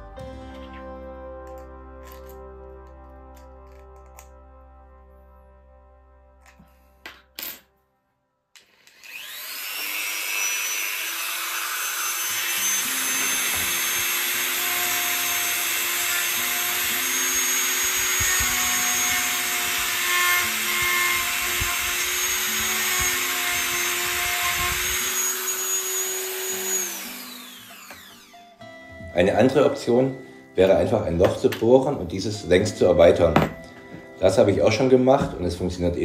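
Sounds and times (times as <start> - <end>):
cut-off disc grinding plastic: 8.6 - 28.3
rotary tool whining: 8.6 - 28.6.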